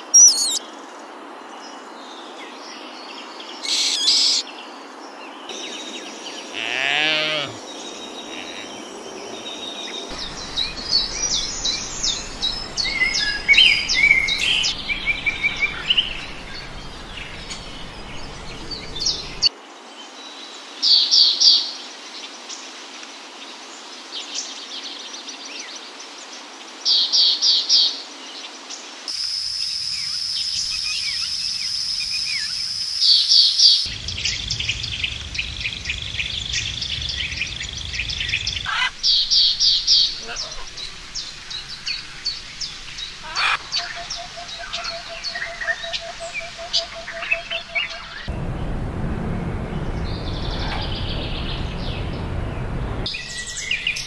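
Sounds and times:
birds calling and chirping: 0.0 - 0.6, 2.8 - 4.8, 5.4 - 19.5, 29.1 - 54.0
steady background hiss: 0.0 - 54.0
rapid high chirps: 29.1 - 33.9.

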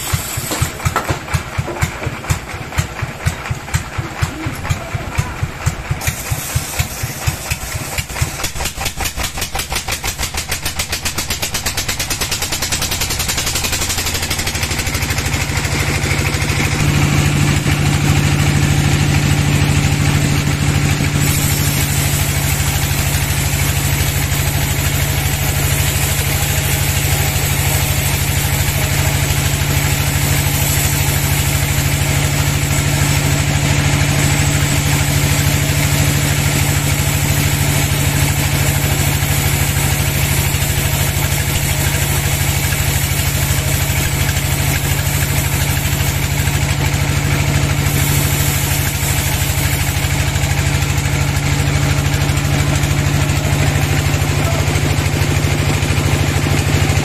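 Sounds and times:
band saw cutting log: 0.0 - 57.0.

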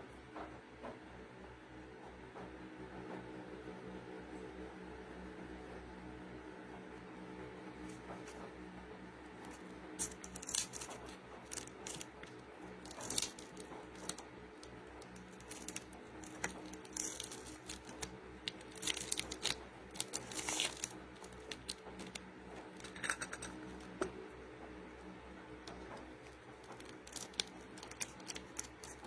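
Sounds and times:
low steady hum: 0.0 - 29.0
plastic bottle crinkling: 9.5 - 24.0, 25.8 - 29.0.

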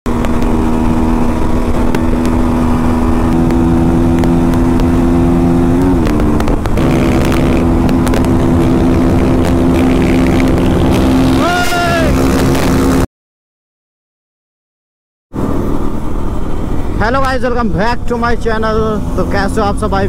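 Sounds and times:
motorcycle engine running: 0.1 - 13.0
wind rumble on microphone: 0.1 - 13.0.

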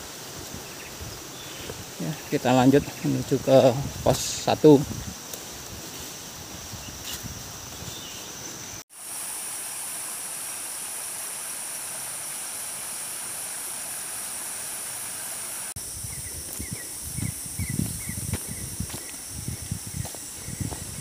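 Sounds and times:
footsteps on a trail: 0.0 - 8.8, 15.8 - 21.0
outdoor hiss: 0.0 - 21.0
high-pitched insect drone: 0.8 - 21.0.

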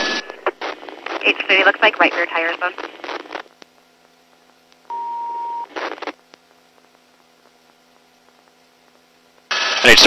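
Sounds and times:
radio beep: 0.0 - 2.8, 4.9 - 6.0
burst of radio noise: 0.0 - 3.4, 9.5 - 10.0.

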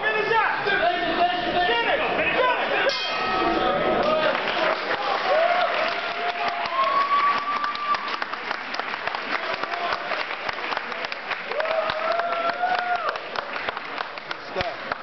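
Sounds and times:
audience applauding: 4.0 - 15.0
long cheering calls: 5.0 - 8.3, 11.5 - 13.2.

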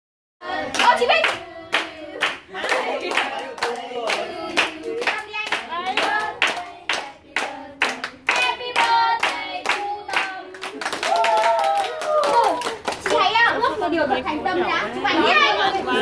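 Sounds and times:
group singing: 0.4 - 11.1
people clapping to a beat: 0.5 - 13.5.

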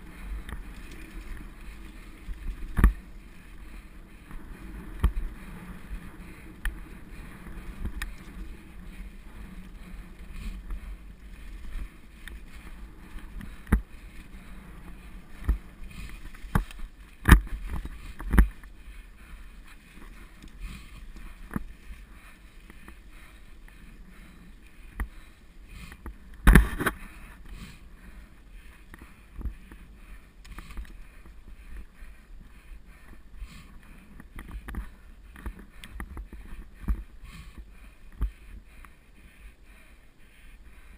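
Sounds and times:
bike knocking and rattling: 0.0 - 23.4
bike tyres rumbling on dirt: 0.0 - 38.4.

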